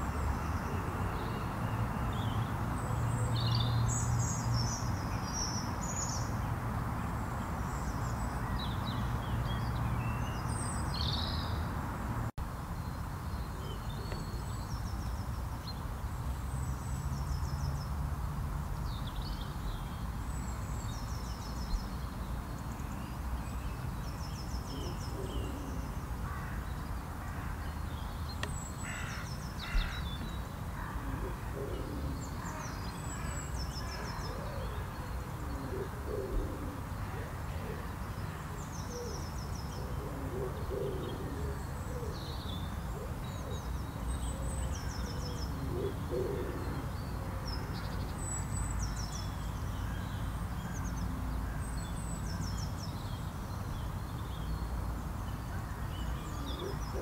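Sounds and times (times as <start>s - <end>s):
lower bird calls: 27.3s - 38.0s.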